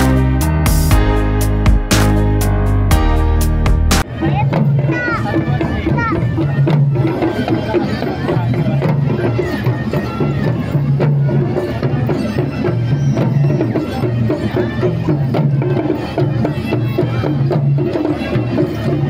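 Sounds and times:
melody of held notes: 0.0 - 4.9
drum and wood-block strokes: 0.0 - 19.0.

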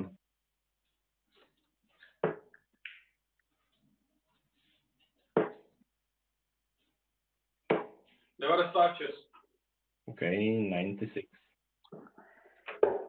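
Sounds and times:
darts thudding into dartboard: 5.4 - 5.7, 7.7 - 8.0.

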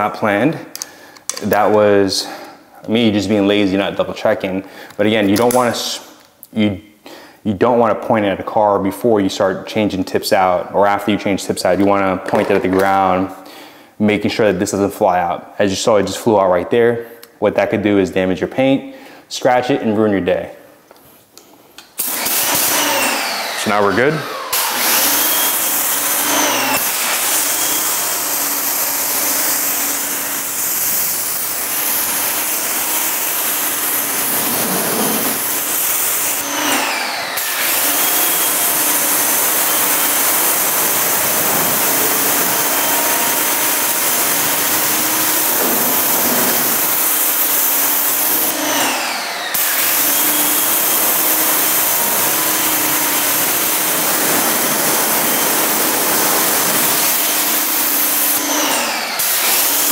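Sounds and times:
motor and pump humming: 22.1 - 59.8
pressure washer spraying water: 24.6 - 59.9.

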